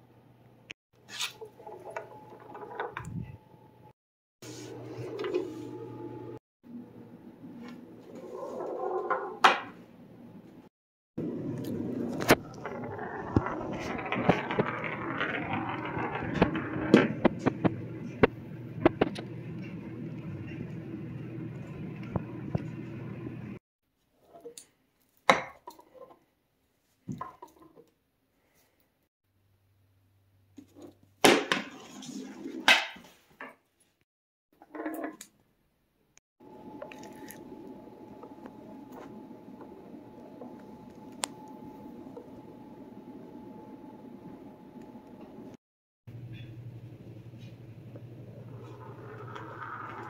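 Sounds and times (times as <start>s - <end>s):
marble rolling on wooden floor: 1.4s - 3.4s, 8.0s - 9.8s, 11.2s - 22.8s, 47.9s - 50.0s.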